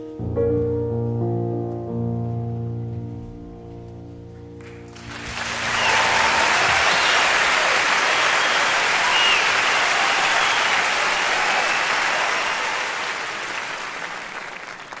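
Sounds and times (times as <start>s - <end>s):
audience applauding: 4.6s - 15.0s.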